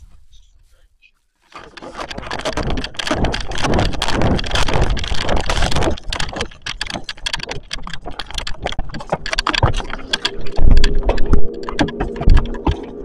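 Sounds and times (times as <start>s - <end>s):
steady low hum: 9.7s - 13.0s.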